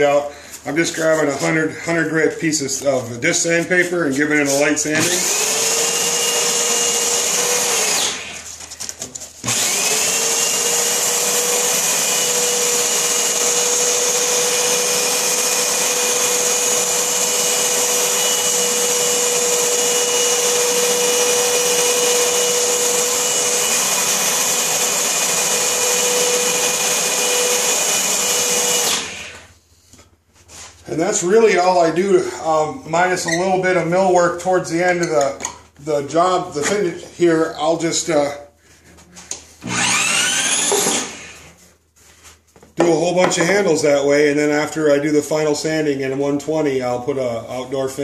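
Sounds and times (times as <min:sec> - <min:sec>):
electric drill motor whine: 0:05.0 - 0:08.5, 0:09.4 - 0:29.5, 0:39.6 - 0:41.5.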